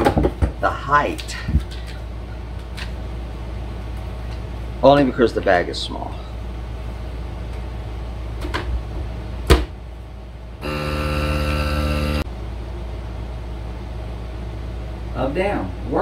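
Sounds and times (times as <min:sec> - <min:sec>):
vacuum pump humming: 0:10.6 - 0:12.3.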